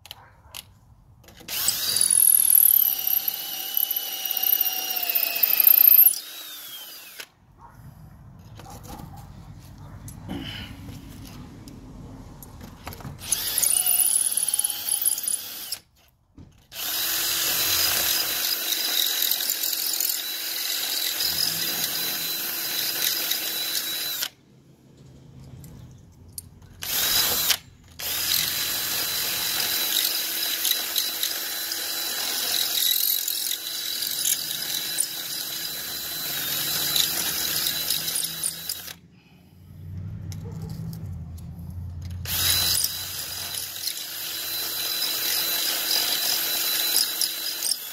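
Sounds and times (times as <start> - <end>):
drill boring into brick: 1.3 - 7.3, 13.2 - 15.9, 16.6 - 24.4, 26.8 - 39.0, 42.2 - 47.9.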